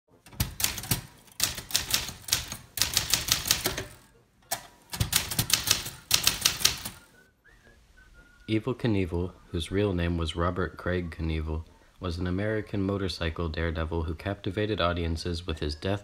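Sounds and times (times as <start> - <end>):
manual typewriter typing: 0.2 - 7.1.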